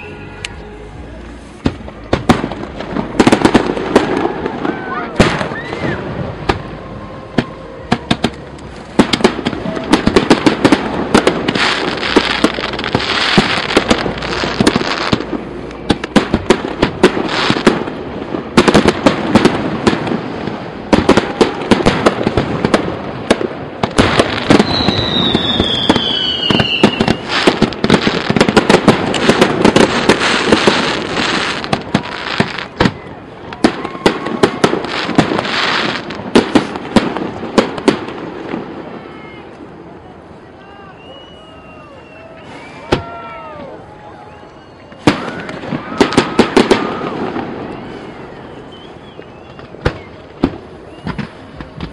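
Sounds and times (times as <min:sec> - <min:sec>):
firework whistle falling in pitch: 0:00.0 - 0:01.2, 0:24.4 - 0:27.4, 0:40.8 - 0:50.2, 0:50.8 - 0:51.9.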